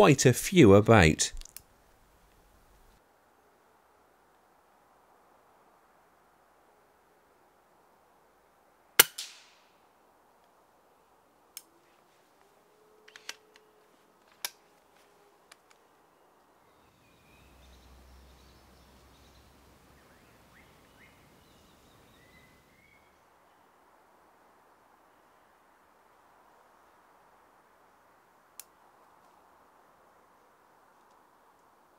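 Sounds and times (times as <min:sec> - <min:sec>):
silenced air rifle shot: 0:09.0 - 0:09.7
metallic clicks of rifle action: 0:13.1 - 0:13.4.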